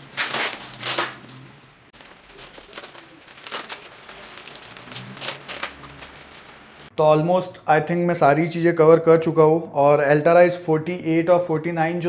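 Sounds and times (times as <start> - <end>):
velcro fasteners pulled apart: 0.0 - 1.4, 2.5 - 6.7
nylon bag dividers rustling: 0.0 - 6.9.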